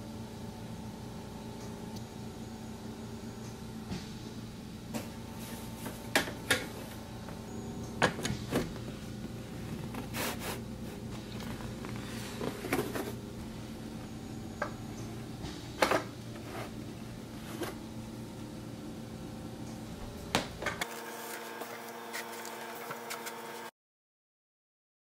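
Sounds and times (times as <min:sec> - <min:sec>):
steady low hum: 0:00.0 - 0:23.7
shelf panel sliding scrapes: 0:09.8 - 0:11.0, 0:16.3 - 0:16.8.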